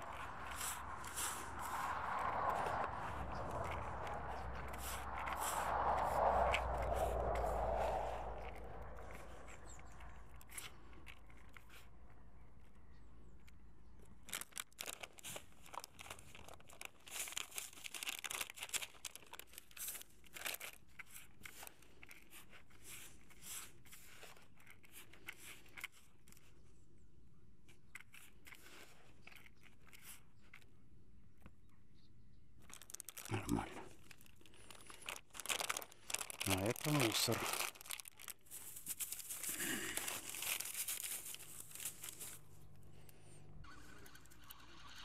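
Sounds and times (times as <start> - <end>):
hands crumbling groundbait in bucket: 32.6 - 42.6.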